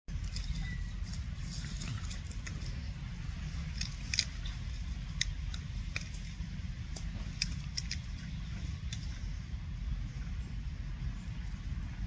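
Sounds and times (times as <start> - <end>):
dry leaves crackling: 0.1 - 9.6
steady low rumble: 0.1 - 12.0.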